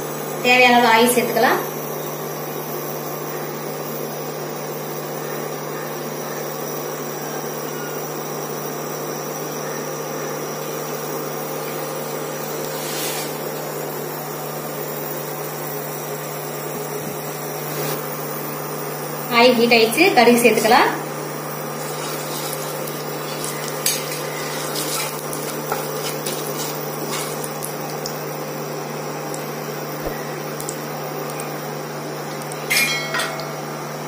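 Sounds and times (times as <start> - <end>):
cooktop fan whirring hum: 0.0 - 34.0.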